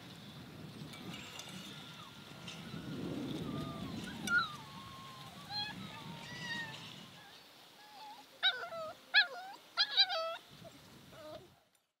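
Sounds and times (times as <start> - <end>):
puppy whimpering and yelping: 3.5 - 10.4.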